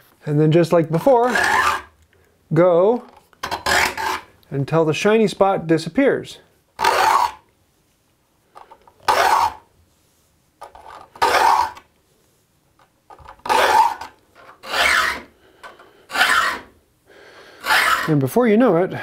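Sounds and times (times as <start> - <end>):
file rasping across saw teeth: 1.2 - 1.9, 3.5 - 4.3, 6.8 - 7.4, 9.0 - 9.6, 11.2 - 11.8, 13.4 - 15.3, 16.1 - 16.7, 17.6 - 18.1.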